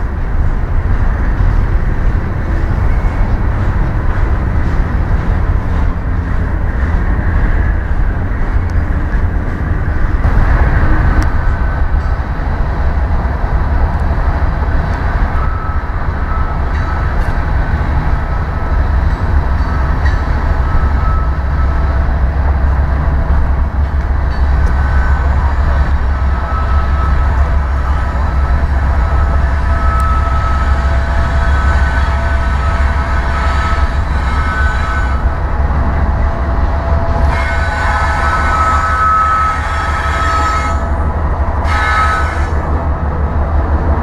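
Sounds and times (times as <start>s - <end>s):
freight train heavy rumble: 0.0s - 44.0s.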